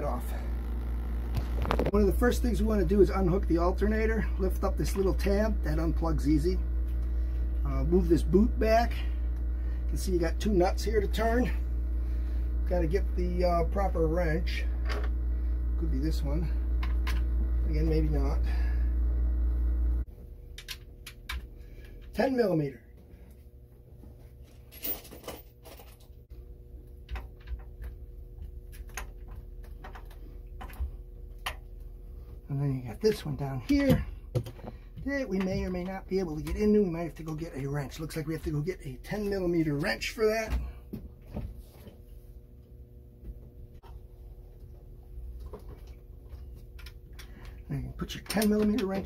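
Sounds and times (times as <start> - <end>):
faint steady hum: 0.0 - 49.0.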